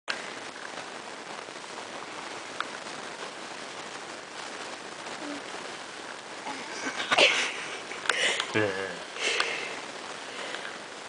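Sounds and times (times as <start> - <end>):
steady background hiss: 0.1 - 11.0.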